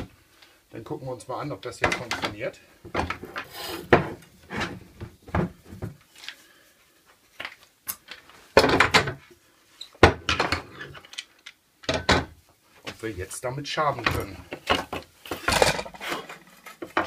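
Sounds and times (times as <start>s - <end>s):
clamps and wood blocks clattering: 8.6s - 9.2s, 14.0s - 17.0s.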